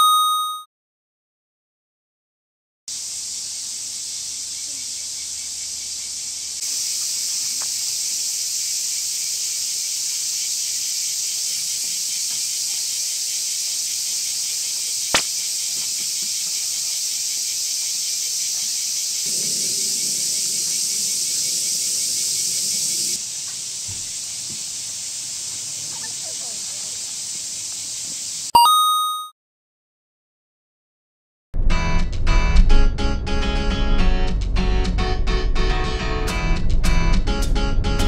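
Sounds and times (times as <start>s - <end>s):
insects chirring: 2.9s - 28.5s
sharp click: 15.1s - 15.3s.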